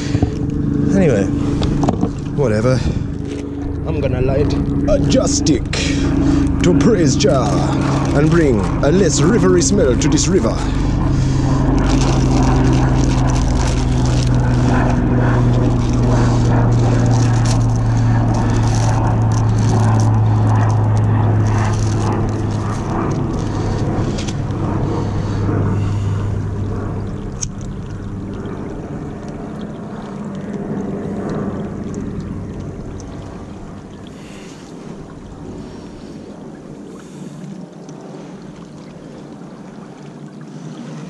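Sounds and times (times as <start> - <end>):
low mechanical hum: 0.0 - 41.0
plastic bag crinkling: 11.7 - 24.5.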